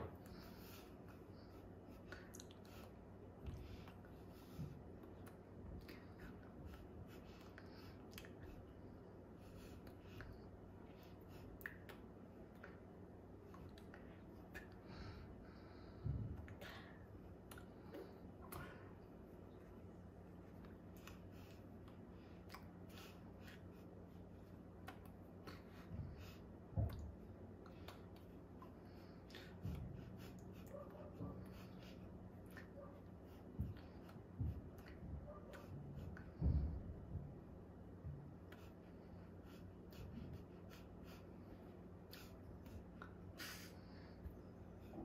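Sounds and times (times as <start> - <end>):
clicks and rustles of hands: 0.0 - 8.8, 9.4 - 15.1, 16.3 - 37.1
steady low hum: 0.0 - 45.0
soft low thump: 34.4 - 38.3.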